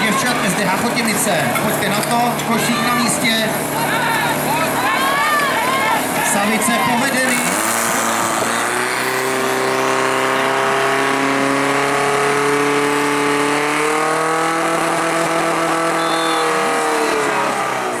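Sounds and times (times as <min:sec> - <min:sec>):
pump engine running at high revs: 0:00.0 - 0:18.0.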